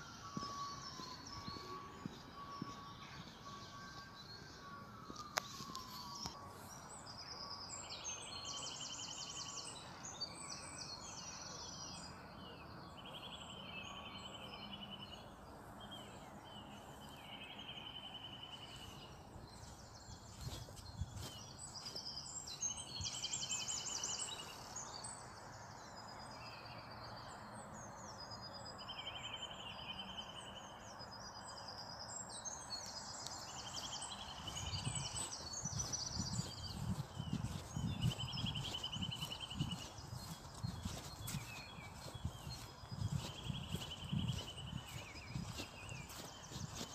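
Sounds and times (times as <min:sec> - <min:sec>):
songbirds trilling: 0:00.0 - 0:46.9.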